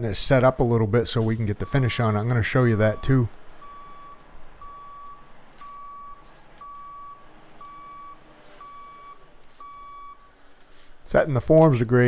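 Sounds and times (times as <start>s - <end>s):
vehicle backup alarm beeping: 1.1s - 10.4s.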